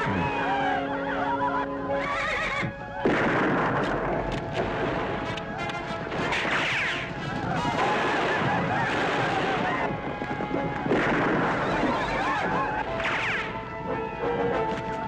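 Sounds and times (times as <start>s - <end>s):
horses neighing: 0.0s - 2.8s
dramatic orchestral music: 0.0s - 15.0s
rifle shot: 3.0s - 5.0s, 10.9s - 11.8s.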